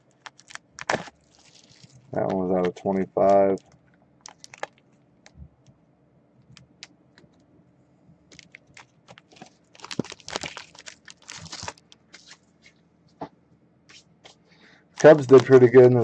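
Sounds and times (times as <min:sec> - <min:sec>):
card sleeves clicking and crinkling: 0:00.1 - 0:04.9, 0:08.3 - 0:12.4.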